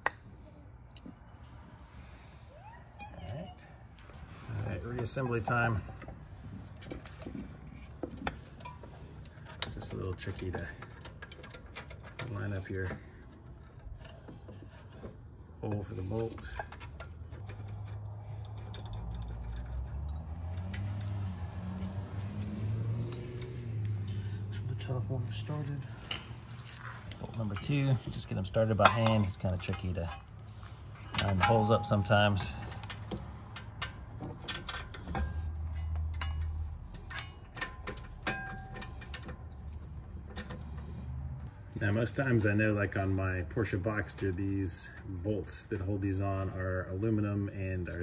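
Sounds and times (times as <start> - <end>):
light metallic clicks of a bolt: 26.1 - 41.7.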